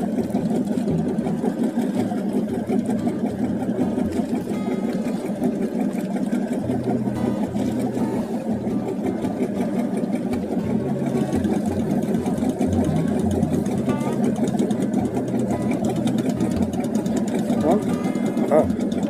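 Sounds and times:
low engine drone: 0.0 - 19.0.

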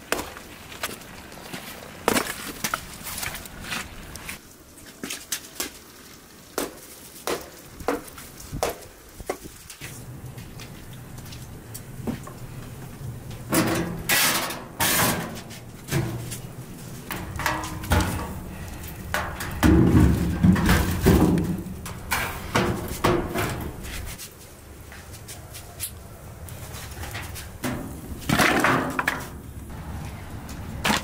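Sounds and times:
objects knocking and scraping: 13.3 - 24.2, 26.7 - 29.4.

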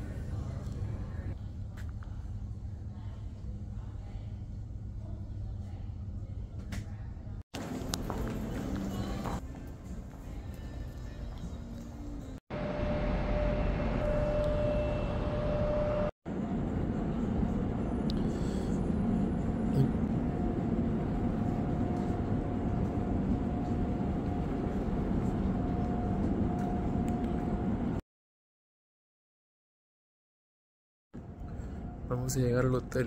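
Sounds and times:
rumbling hum of terminal hall: 0.0 - 28.0.

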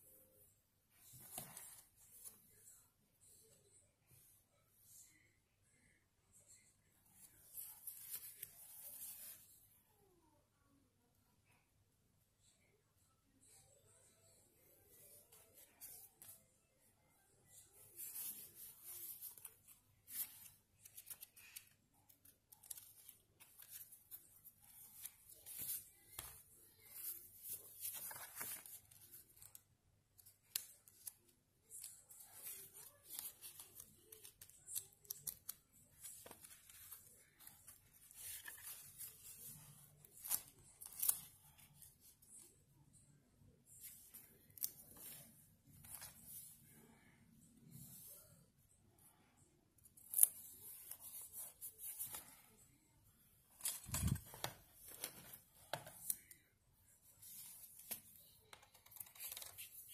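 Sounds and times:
paper rustling and crinkling: 17.6 - 29.6, 30.2 - 42.1, 53.5 - 56.4, 57.1 - 59.9.

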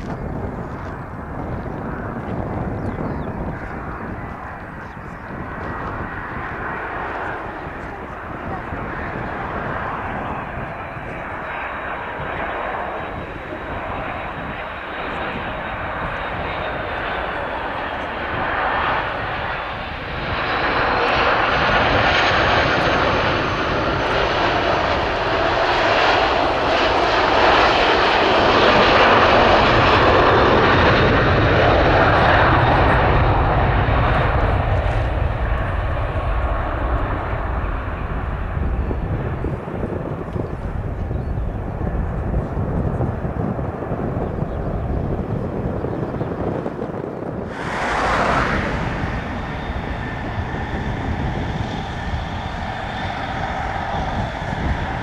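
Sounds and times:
jet engines passing: 0.0 - 55.0
thin whine: 47.4 - 55.0.

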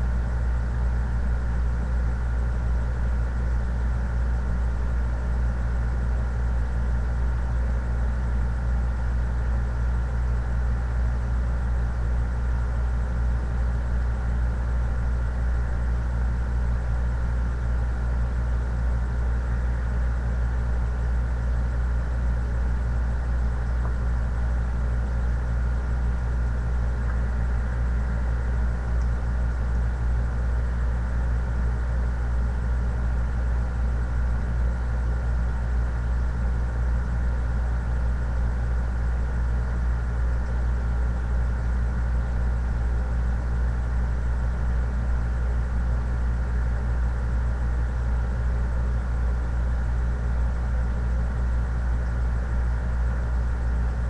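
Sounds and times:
low hum: 8.9 - 35.6.

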